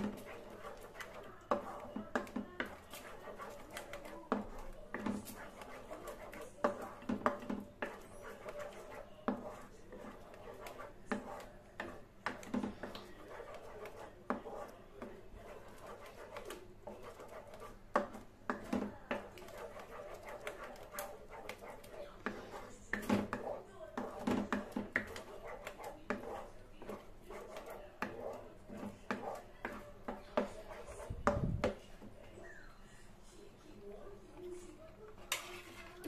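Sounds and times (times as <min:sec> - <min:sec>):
spatula scraping a steel pan: 0:15.4 - 0:31.0.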